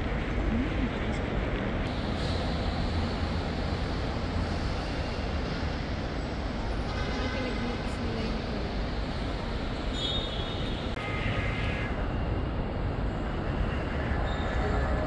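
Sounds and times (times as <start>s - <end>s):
faint voices: 0.0s - 1.9s.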